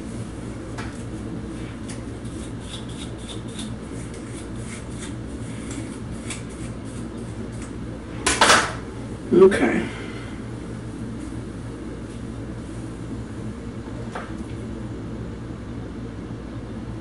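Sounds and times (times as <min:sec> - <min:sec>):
steady low hum: 0:00.0 - 0:17.0
fingers rustling through hair: 0:00.9 - 0:07.7.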